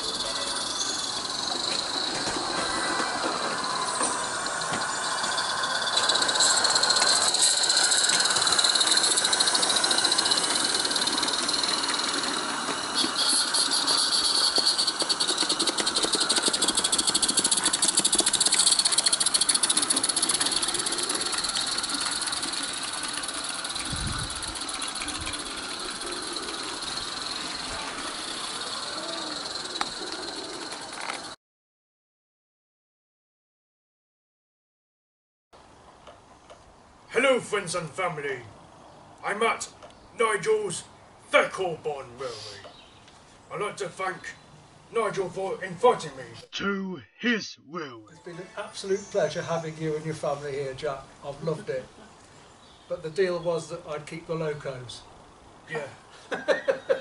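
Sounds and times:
steam locomotive hissing and chuffing: 0.0 - 31.4, 41.5 - 42.8.

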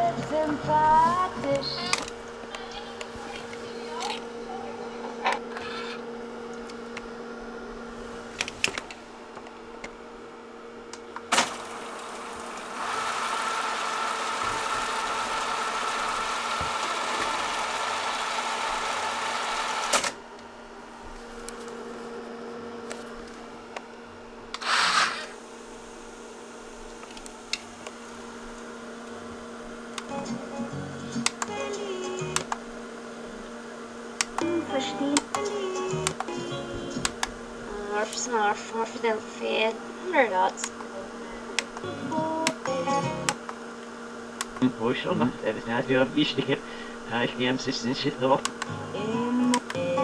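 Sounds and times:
steady electrical hum: 0.0 - 50.0
cassette deck mechanisms clicking: 0.3 - 4.3, 31.1 - 32.6, 34.2 - 37.4, 41.6 - 44.7, 48.2 - 50.0
whirring hiss: 24.5 - 26.5.

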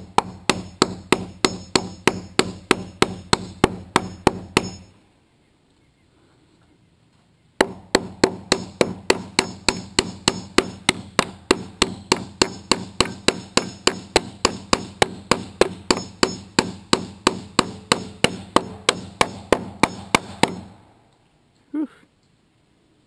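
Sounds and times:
hammer driving nails: 0.0 - 4.9, 7.6 - 20.8.

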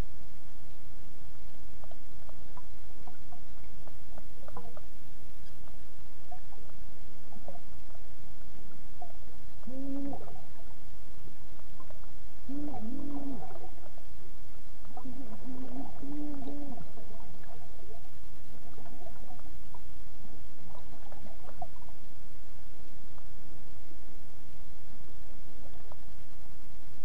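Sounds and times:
low underwater rumble: 0.0 - 27.0
muffled moans underwater: 6.2 - 8.0, 9.0 - 10.9, 11.6 - 20.0, 20.6 - 22.1.

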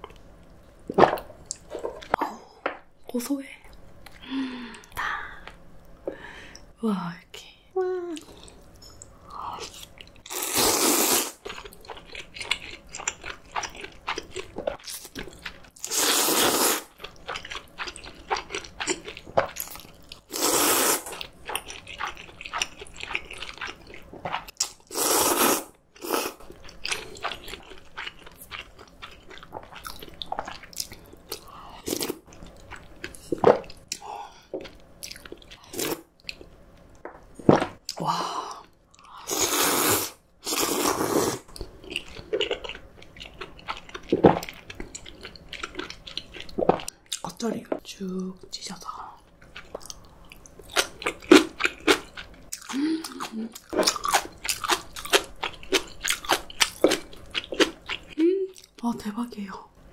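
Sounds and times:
person slurping noodles: 10.3 - 11.4, 15.8 - 16.9, 20.3 - 21.1, 24.9 - 26.4, 39.2 - 41.5
soft chewing and lip smacks: 32.3 - 37.0, 48.1 - 58.8.

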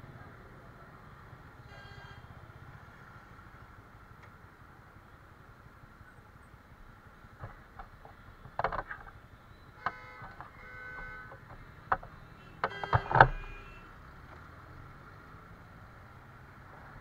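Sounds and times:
short horn beeps: 9.8 - 11.4, 12.4 - 13.9.

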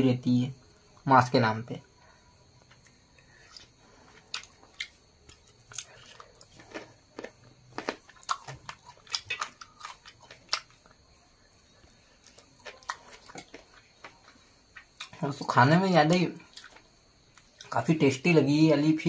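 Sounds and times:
person chewing chicken: 2.6 - 15.2, 16.5 - 17.7.

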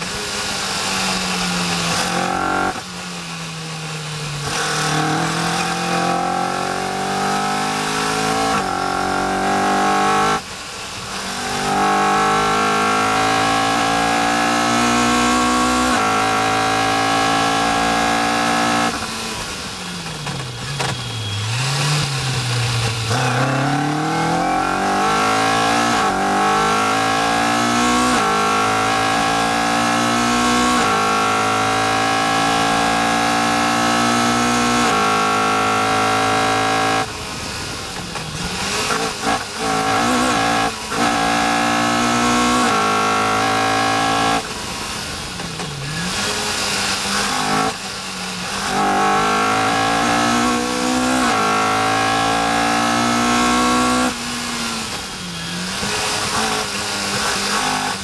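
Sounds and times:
car engine at full throttle: 0.0 - 58.0.

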